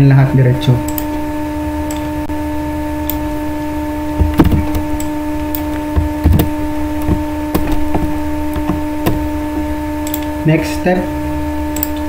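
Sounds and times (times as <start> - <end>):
buzzing hum: 0.0 - 12.0
computer mouse clicks: 0.9 - 1.1, 10.0 - 10.3, 11.8 - 12.0.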